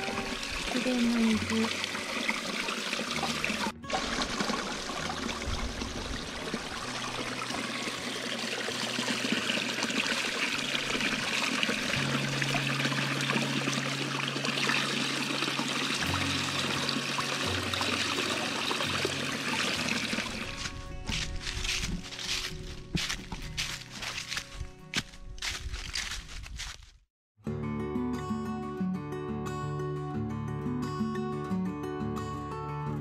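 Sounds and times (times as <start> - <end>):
flowing stream water: 0.0 - 24.4
soft music of low held notes: 15.6 - 26.0.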